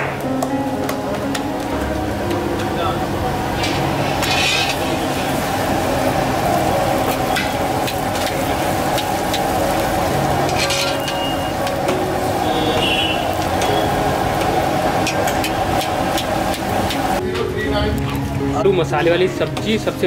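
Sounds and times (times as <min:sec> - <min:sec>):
bread sizzling in hot oil: 0:03.1 - 0:17.2.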